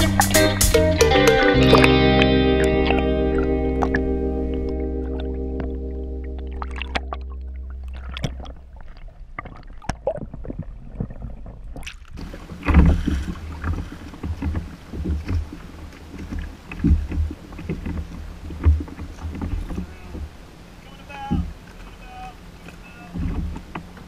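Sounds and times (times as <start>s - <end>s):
underwater clicks: 1.1s - 20.3s
water splashing against hull: 1.2s - 24.0s.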